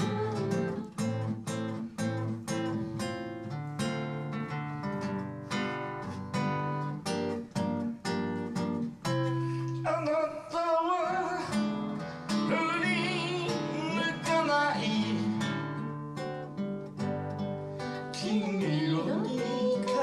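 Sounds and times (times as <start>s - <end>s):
man singing: 0.0s - 1.2s, 9.6s - 15.9s, 18.0s - 20.0s
acoustic guitar strumming: 0.0s - 20.0s.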